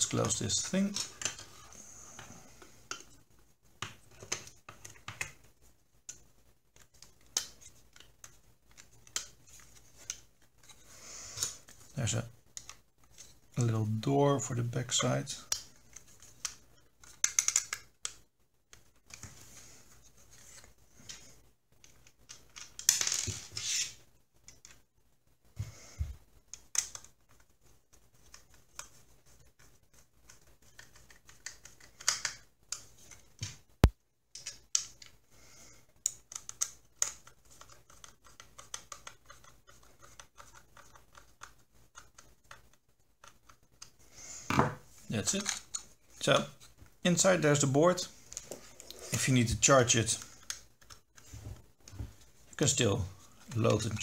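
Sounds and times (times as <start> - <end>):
plastic parts clicking and scraping: 0.0 - 3.2, 3.8 - 11.9, 15.0 - 19.3, 21.8 - 24.8, 26.5 - 33.6, 34.3 - 35.2, 35.8 - 44.0, 45.2 - 46.8, 48.2 - 54.0.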